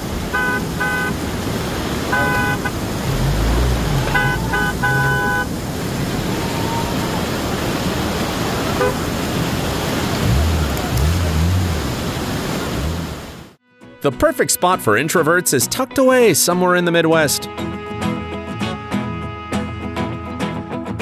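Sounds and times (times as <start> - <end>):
floodwater rushing: 0.0 - 13.6
car horn honking: 0.3 - 1.2, 2.1 - 2.8, 3.9 - 5.6, 8.8 - 9.1.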